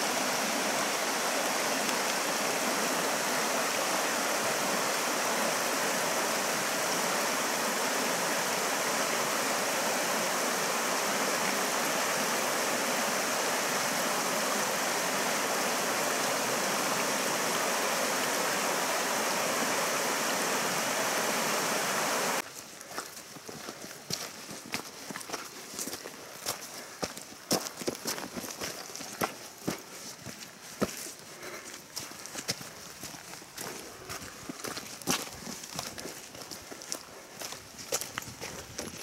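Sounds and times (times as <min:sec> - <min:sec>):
water rushing over rocks: 0:00.0 - 0:22.4.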